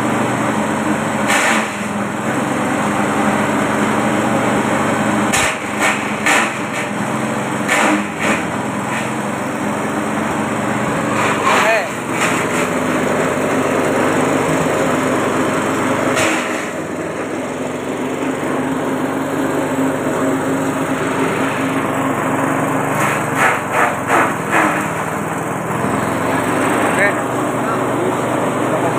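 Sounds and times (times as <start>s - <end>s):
small petrol engine running: 0.0s - 28.9s
chaff cutter chopping greens: 1.2s - 2.5s, 5.3s - 9.2s, 11.0s - 27.0s.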